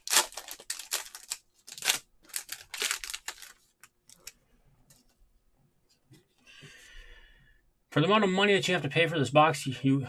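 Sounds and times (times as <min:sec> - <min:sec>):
wrapper crinkling and tearing: 0:00.0 - 0:04.4.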